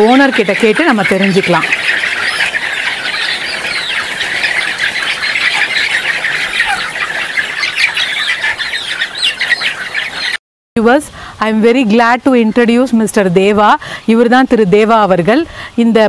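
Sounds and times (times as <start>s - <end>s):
flock of hens calling: 0.0s - 10.4s.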